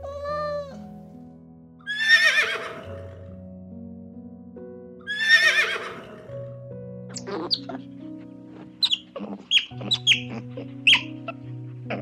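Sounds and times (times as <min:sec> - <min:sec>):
background music with held notes: 0:00.0 - 0:12.0
horse whinnying: 0:01.9 - 0:03.0, 0:05.1 - 0:06.3, 0:07.1 - 0:07.8, 0:08.8 - 0:12.0
cat meowing: 0:07.1 - 0:07.8, 0:08.8 - 0:11.2.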